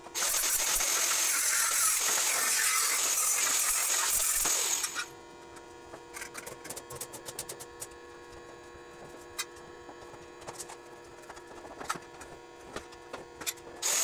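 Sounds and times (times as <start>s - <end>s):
angle grinder grinding steel: 0.2s - 5.1s.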